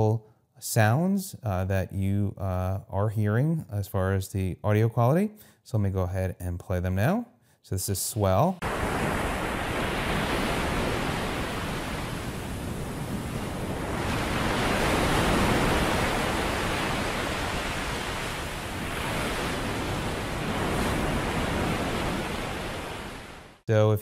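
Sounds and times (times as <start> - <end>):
ocean surf noise: 8.6 - 23.6.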